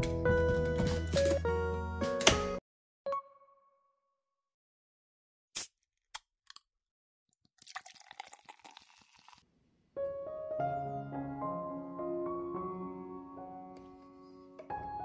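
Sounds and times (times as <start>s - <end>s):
background music: 0.0s - 3.6s, 10.0s - 15.0s.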